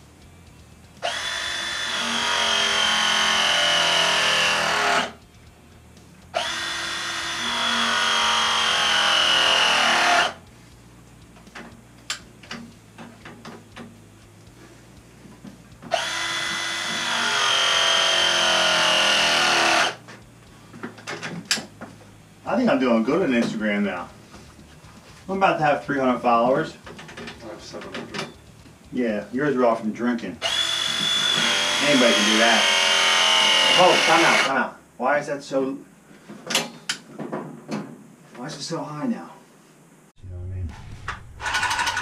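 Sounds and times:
press tool motor whine: 1.0s - 5.2s, 6.4s - 10.4s, 15.9s - 20.0s, 30.4s - 34.5s.

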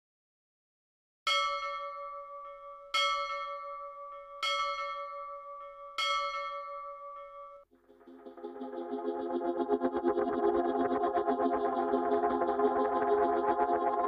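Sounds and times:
bell ringing: 1.3s - 7.7s.

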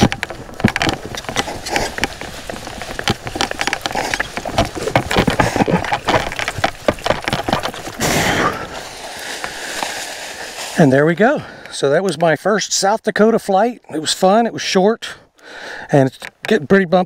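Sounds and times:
running footsteps on grass and pavement: 0.0s - 12.3s
crackling wind: 0.0s - 17.0s.

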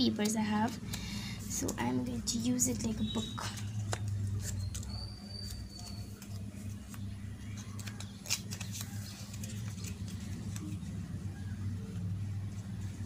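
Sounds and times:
paper rustling and crinkling: 1.4s - 11.3s
sharp paper click: 2.8s - 10.8s.

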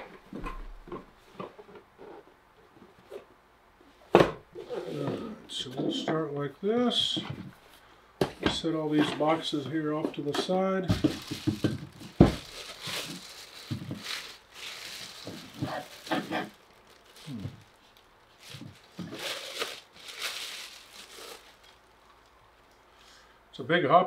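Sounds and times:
plastic packaging crinkling: 10.9s - 22.9s.

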